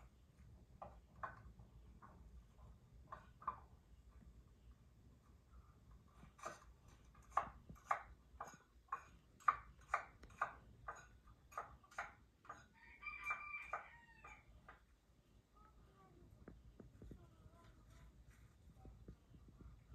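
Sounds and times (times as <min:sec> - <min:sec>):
knife chopping on wooden block: 0:06.4 - 0:13.8.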